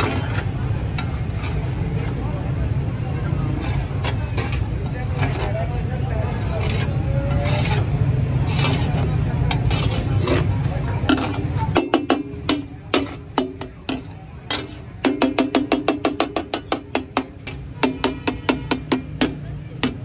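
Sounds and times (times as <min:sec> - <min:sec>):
metal spatulas striking griddle: 0:08.5 - 0:20.0.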